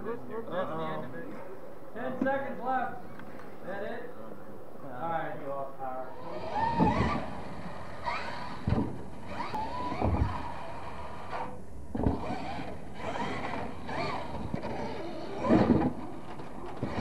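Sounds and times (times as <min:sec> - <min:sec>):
toy truck motor whining: 0:06.2 - 0:17.0.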